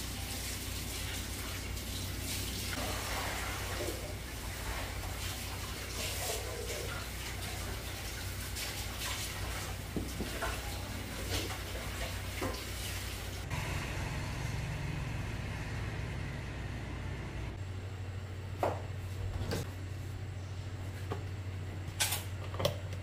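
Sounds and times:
steady low hum: 0:13.3 - 0:23.0.

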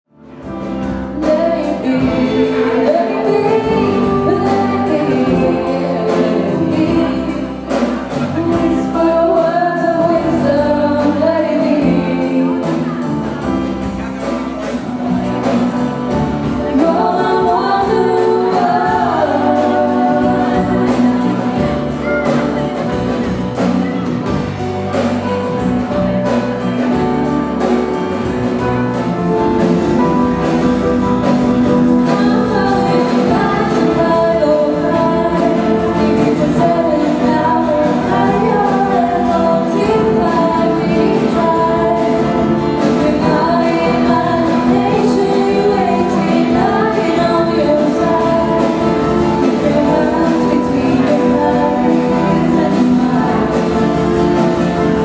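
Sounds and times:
acoustic guitar: 0:00.1 - 0:55.0
electric bass: 0:00.1 - 0:55.0
keyboard: 0:00.1 - 0:55.0
women singing: 0:01.1 - 0:13.1, 0:16.4 - 0:22.0, 0:31.3 - 0:55.0.

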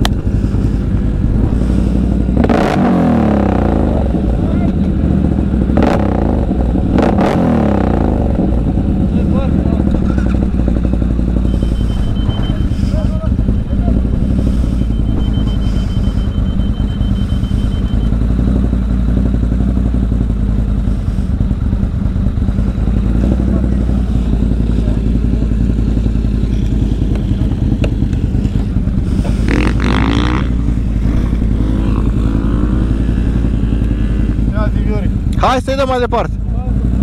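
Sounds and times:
atv engine droning: 0:00.0 - 0:37.0
higher bending sound: 0:28.7 - 0:34.5.

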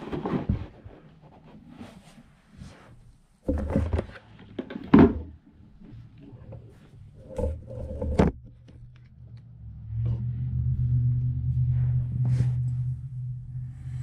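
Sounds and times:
steady low hum: 0:08.4 - 0:14.0.

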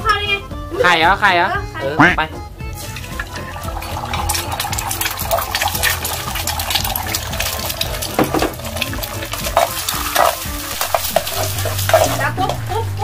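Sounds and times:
eggs sizzling in oil: 0:02.7 - 0:13.0.

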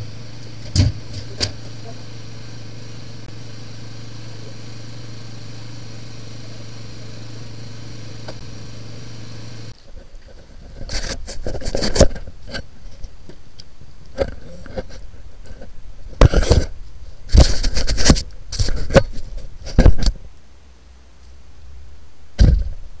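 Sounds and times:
low steady background noise: 0:00.0 - 0:17.6, 0:18.2 - 0:23.0
knocks and scrapes: 0:09.7 - 0:13.4, 0:14.0 - 0:20.3, 0:22.4 - 0:22.8.

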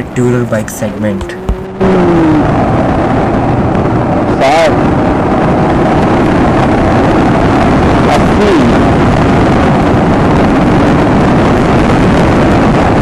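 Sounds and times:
wind buffeting microphone: 0:00.0 - 0:13.0
motorcycle engine running: 0:01.2 - 0:04.3.

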